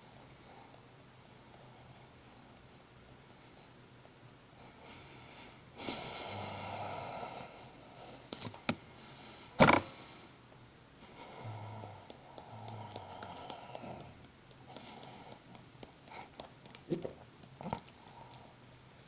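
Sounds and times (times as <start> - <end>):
beatbox breathy hiss: 11.0 - 18.5.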